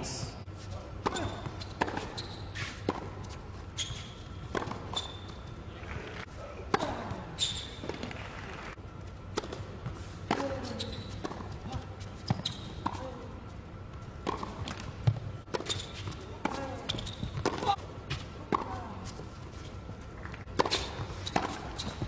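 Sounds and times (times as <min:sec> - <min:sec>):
tennis balls struck by rackets: 0:01.0 - 0:03.3, 0:04.4 - 0:05.0, 0:09.3 - 0:13.1, 0:14.2 - 0:18.8, 0:20.3 - 0:22.0.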